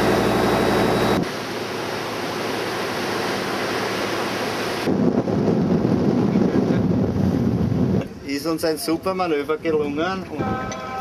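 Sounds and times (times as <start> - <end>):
wind buffeting microphone: 4.8 - 10.6.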